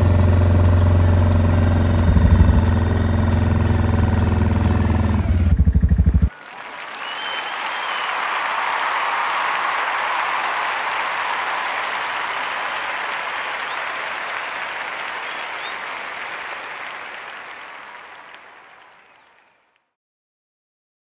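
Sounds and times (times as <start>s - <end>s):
crowd applause: 1.9s - 4.9s, 5.9s - 19.8s.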